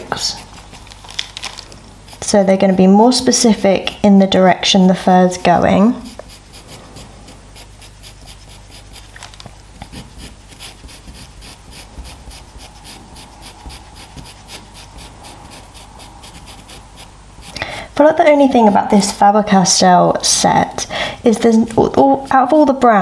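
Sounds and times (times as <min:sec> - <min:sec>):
pencil scratching on paper: 0:00.0 - 0:01.0, 0:02.0 - 0:09.2, 0:09.8 - 0:19.6.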